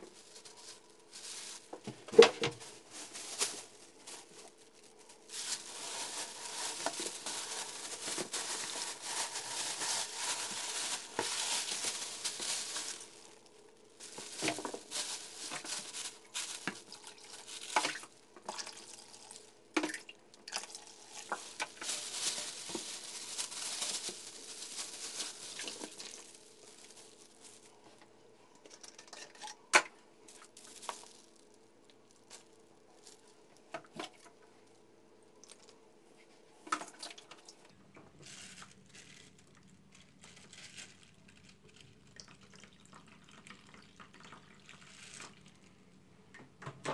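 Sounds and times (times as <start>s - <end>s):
plastic bags crinkling: 0.0s - 28.0s, 30.3s - 34.8s, 38.2s - 42.7s.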